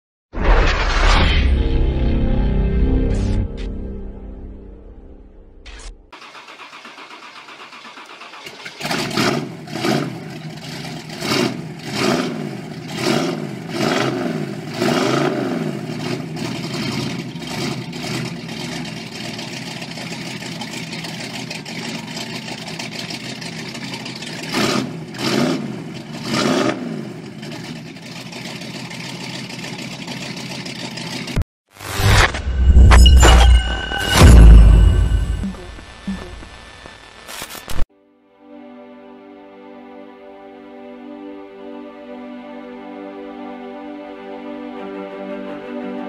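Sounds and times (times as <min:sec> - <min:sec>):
vehicle engine starting: 0:05.6 - 0:31.4
engine revving: 0:05.7 - 0:29.4
engine idling: 0:06.2 - 0:09.0, 0:15.9 - 0:25.2, 0:27.2 - 0:31.4.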